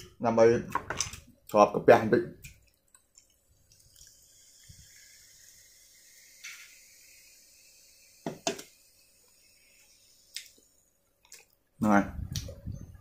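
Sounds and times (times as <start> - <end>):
soda fizzing over ice: 2.5 - 10.9.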